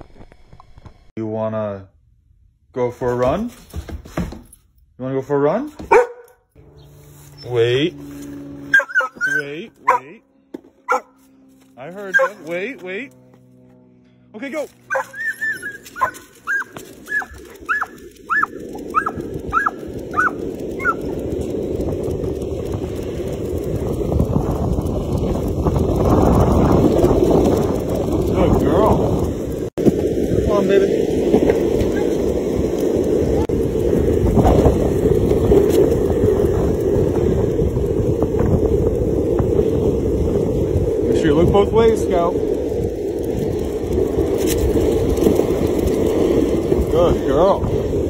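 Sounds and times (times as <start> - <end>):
dog yelping: 5.9 - 6.2, 8.7 - 10.1, 10.9 - 11.2, 12.1 - 12.4, 14.9 - 21.1, 31.8 - 32.2
footsteps running: 14.8 - 21.0
wind noise: 14.9 - 48.0.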